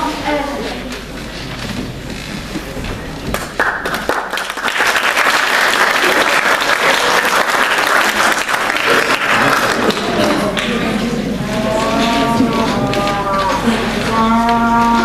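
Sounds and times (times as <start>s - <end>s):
audience applauding: 3.3s - 10.9s.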